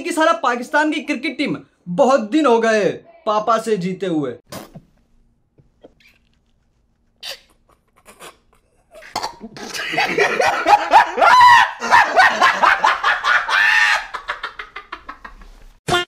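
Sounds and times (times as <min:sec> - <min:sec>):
man shrieking and wailing: 0:11.1 - 0:11.9, 0:13.3 - 0:14.2.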